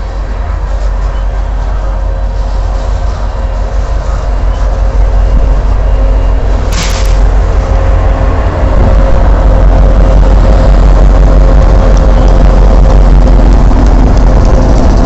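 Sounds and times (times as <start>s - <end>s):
diesel locomotive engines whining: 0.0s - 15.0s
wheels rumbling on rail: 0.0s - 15.0s
short hiss: 6.7s - 7.2s.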